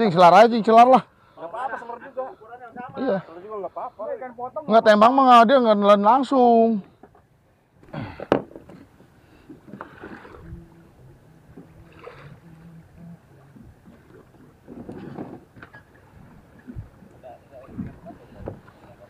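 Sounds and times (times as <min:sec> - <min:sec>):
boat engine humming: 0:06.5 - 0:19.0.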